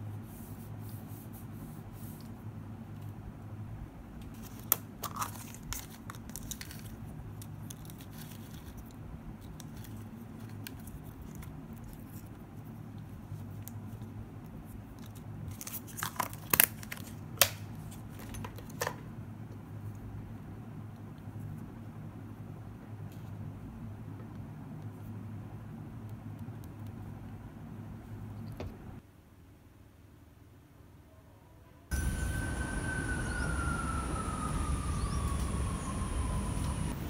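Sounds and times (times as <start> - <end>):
paper rustling: 4.3 - 12.5
steady low hum: 31.9 - 37.0.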